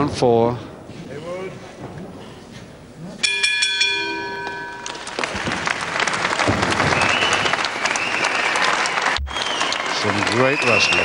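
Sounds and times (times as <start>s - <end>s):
ring bell struck: 3.2s - 5.1s
crowd applauding: 4.4s - 11.0s.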